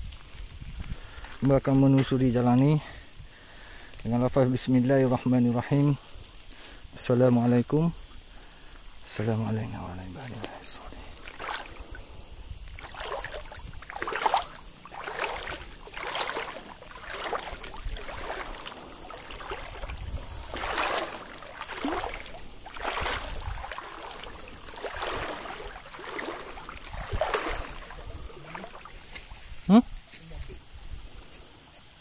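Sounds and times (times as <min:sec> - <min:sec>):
water splashing from wading: 0:11.1 - 0:29.5
stream rushing: 0:11.2 - 0:12.1, 0:12.8 - 0:29.1.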